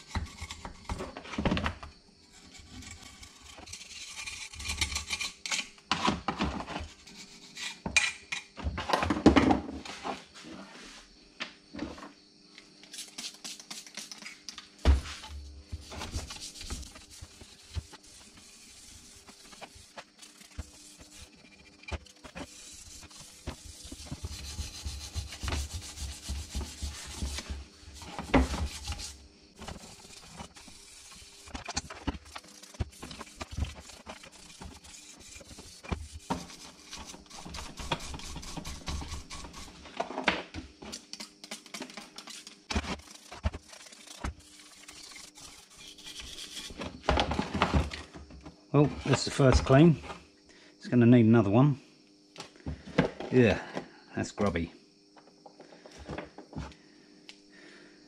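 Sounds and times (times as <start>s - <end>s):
brush scrubbing metal: 15.7s - 39.9s, 41.0s - 46.9s.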